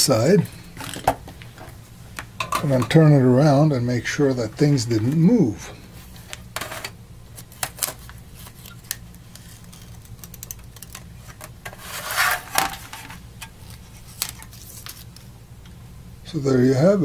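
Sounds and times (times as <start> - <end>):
steady low hum: 0.0 - 17.0
rustling scrape: 11.2 - 15.1.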